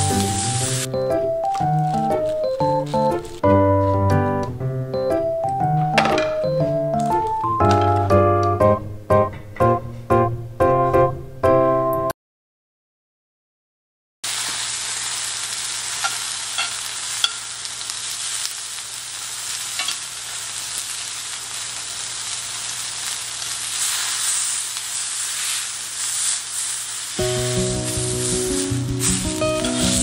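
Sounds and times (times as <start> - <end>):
steak sizzling in a skillet: 0.0 - 4.2, 14.2 - 30.0.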